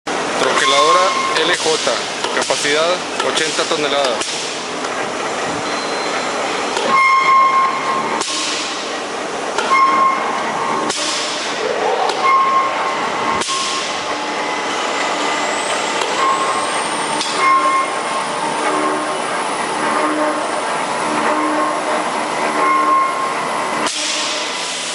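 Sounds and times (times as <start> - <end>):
press motor and flywheel running: 0.1 - 24.9.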